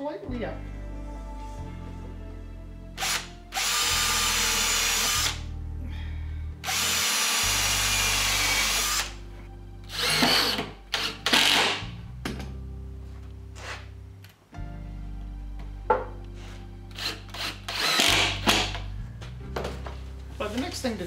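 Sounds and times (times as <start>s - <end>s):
cordless drill drilling into wood: 3.0s - 5.4s, 6.6s - 9.2s, 9.9s - 11.8s, 16.9s - 18.7s.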